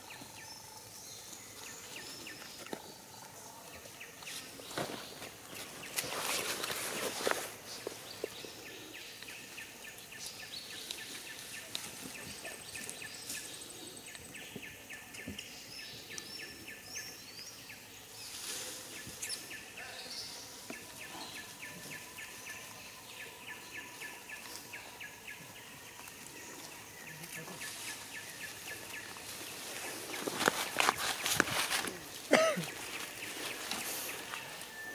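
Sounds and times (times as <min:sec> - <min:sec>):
insects humming: 0:00.0 - 0:34.9
rustles in dry leaves: 0:01.1 - 0:14.1, 0:18.1 - 0:34.9.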